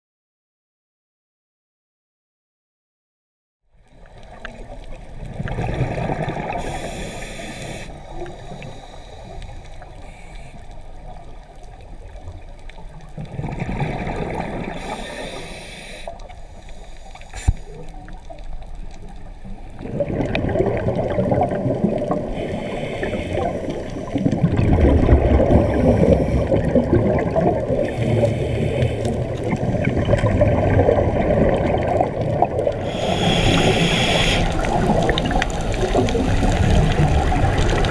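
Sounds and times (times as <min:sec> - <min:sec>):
gurgling exhaled bubbles: 0:04.0 - 0:08.7, 0:11.0 - 0:15.7, 0:17.4 - 0:37.9
diver breathing through regulator: 0:06.4 - 0:10.8, 0:14.3 - 0:17.9, 0:22.0 - 0:24.4, 0:25.3 - 0:26.9, 0:27.8 - 0:29.6, 0:32.8 - 0:37.1.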